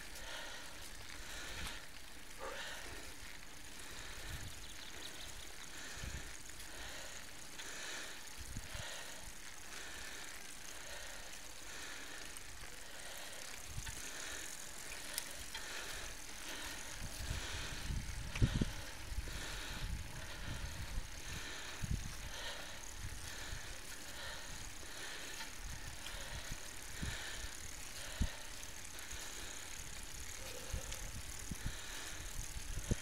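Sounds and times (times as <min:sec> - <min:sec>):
bicycle tyres hissing on road: 0:00.0 - 0:33.0
wind buffeting microphone: 0:16.8 - 0:23.8, 0:30.2 - 0:33.0.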